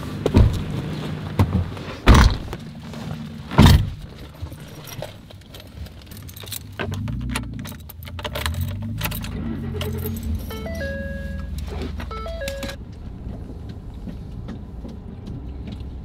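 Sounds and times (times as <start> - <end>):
loud thump: 2.1 - 2.6.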